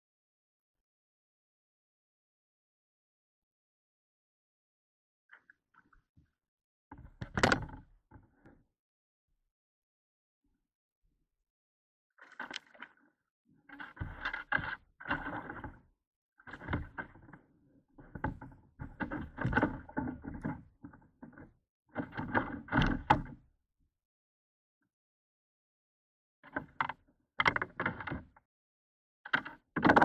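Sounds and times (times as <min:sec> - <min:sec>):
knocking and rattling in kayak: 0:06.9 - 0:08.5, 0:13.7 - 0:15.9, 0:16.5 - 0:23.4, 0:26.5 - 0:28.4, 0:29.3 - 0:30.0.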